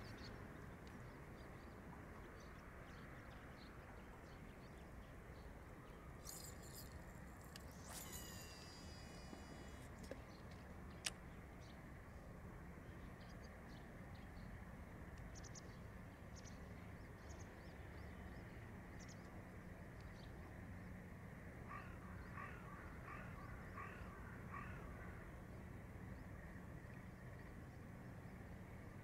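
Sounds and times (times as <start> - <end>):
faint high chirps: 6.1 - 9.8.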